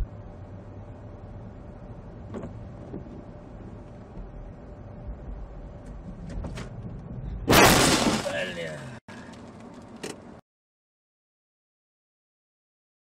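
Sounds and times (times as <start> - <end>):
engine and road rumble: 0.0 - 10.4.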